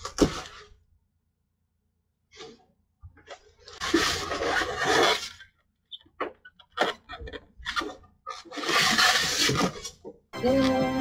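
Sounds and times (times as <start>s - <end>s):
cardboard and styrofoam scraping: 3.7s - 5.5s, 6.8s - 10.0s.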